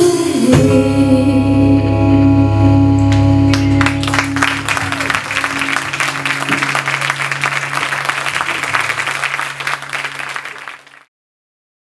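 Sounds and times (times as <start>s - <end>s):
audience applauding: 3.5s - 11.1s.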